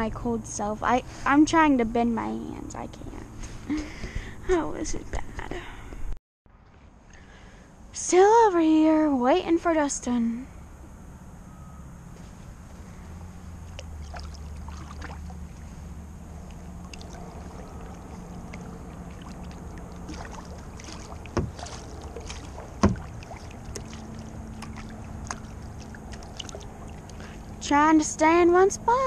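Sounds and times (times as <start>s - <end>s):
low wind rumble on microphone: 0.0s - 6.2s, 12.5s - 29.0s
kayak paddle dipping: 12.9s - 27.6s
water lapping against kayak hull: 13.1s - 27.8s
sharp knocks: 20.9s - 23.9s.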